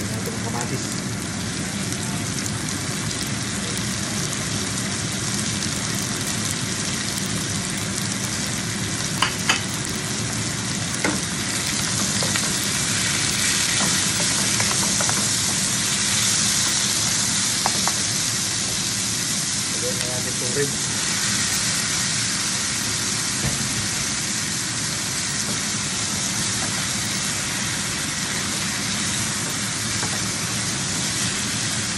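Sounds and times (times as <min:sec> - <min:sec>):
vegetables sizzling in oil: 0:00.0 - 0:31.9
spatula stirring pan: 0:10.9 - 0:16.8.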